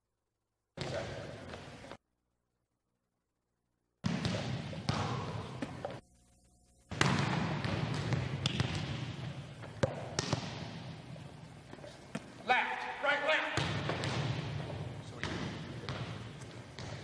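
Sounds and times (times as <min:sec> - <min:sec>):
tape hiss: 0:04.6 - 0:13.3.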